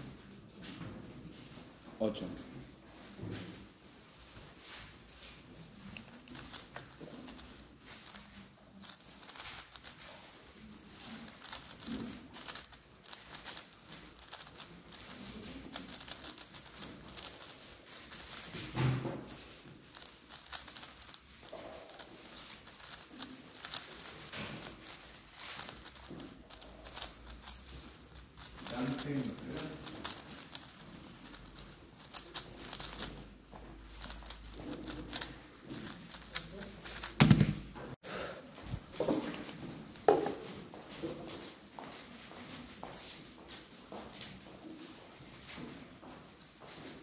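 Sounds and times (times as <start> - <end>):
puzzle cube plastic clicks: 6.0 - 10.1, 11.1 - 18.6, 19.9 - 33.3, 33.9 - 37.6.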